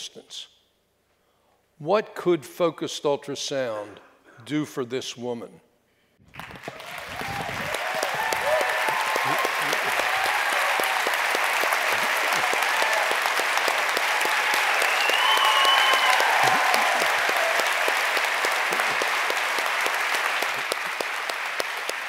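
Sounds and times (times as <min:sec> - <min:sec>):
audience applauding: 0:06.3 - 0:22.0.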